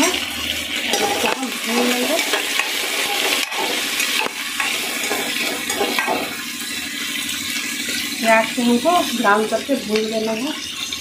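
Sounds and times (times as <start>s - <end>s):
onions sizzling in hot oil: 0.0s - 11.0s
spoon scraping and knocking pot: 0.9s - 6.4s.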